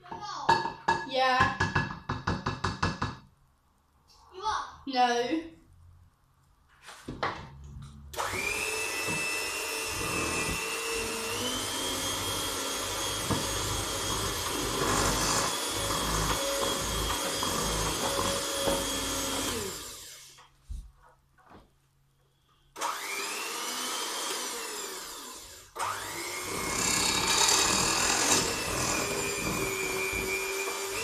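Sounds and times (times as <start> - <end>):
electric mixer motor whine: 8.2 - 20.4, 22.8 - 31.0.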